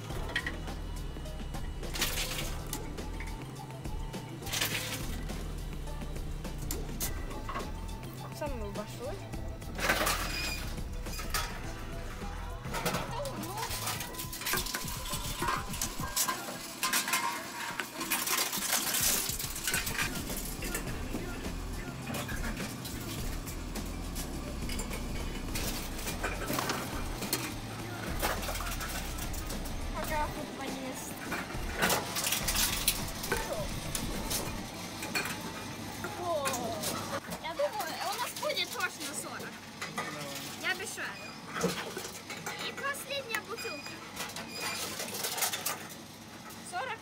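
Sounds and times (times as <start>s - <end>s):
metal cans clinking in machine: 0.0s - 0.8s, 1.9s - 3.4s, 4.4s - 5.4s, 9.7s - 11.8s, 12.6s - 35.5s, 36.4s - 46.7s
aluminium cans clinking: 12.7s - 20.9s.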